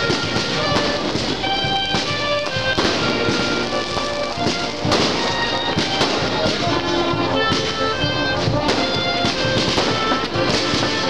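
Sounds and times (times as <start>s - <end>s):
fireworks bangs and crackling: 0.0s - 11.0s
music playing: 0.0s - 11.0s.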